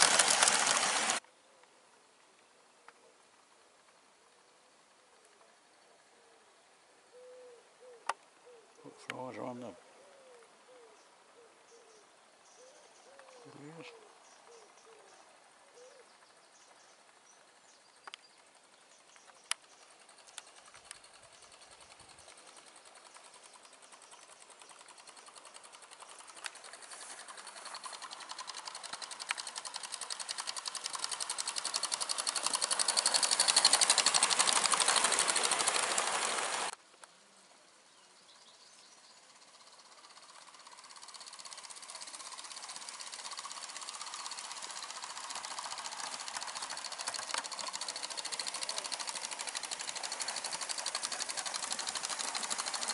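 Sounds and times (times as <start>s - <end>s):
model train rapid ticking: 0.0s - 1.2s, 17.0s - 36.8s, 39.2s - 52.9s.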